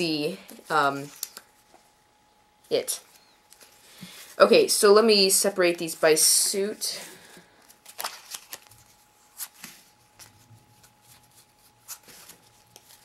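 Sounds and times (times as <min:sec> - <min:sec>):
playing cards flicking and sliding: 0:07.6 - 0:13.0.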